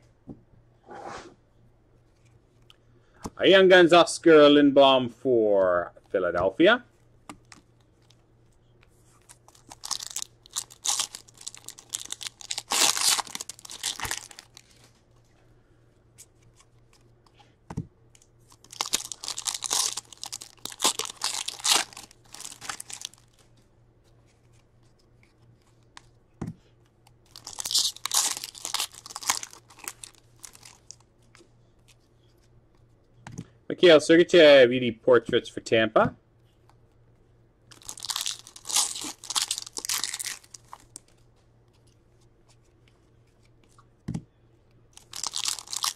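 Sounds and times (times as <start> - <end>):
wrappers tearing and crinkling: 9.2 - 14.9, 18.5 - 23.5, 27.3 - 31.0, 37.7 - 41.2, 44.9 - 45.9.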